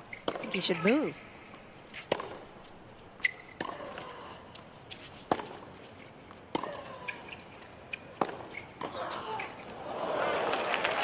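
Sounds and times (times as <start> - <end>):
shoes squeaking on court: 0.0 - 9.8
tennis ball racket hits: 2.0 - 2.5, 4.9 - 5.7, 6.5 - 9.6.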